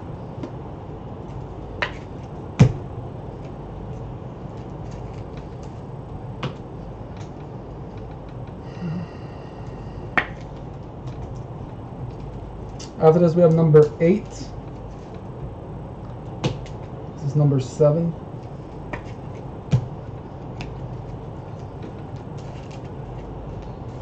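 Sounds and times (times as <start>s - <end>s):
steady low hum: 0.0s - 24.0s
trading cards snapping and clicking: 10.2s - 11.4s, 16.3s - 16.9s, 18.9s - 19.9s.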